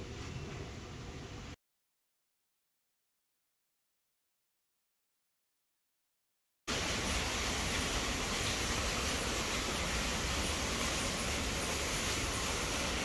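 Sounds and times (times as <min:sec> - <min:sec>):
waterfall rushing: 0:06.7 - 0:13.0.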